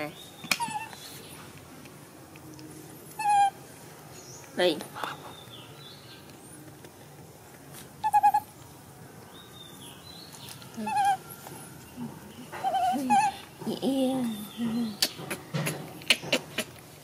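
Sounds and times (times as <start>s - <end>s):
baby monkey squeaking: 0.5s - 1.0s, 3.2s - 3.6s, 8.0s - 8.5s, 10.8s - 11.3s, 12.6s - 13.4s.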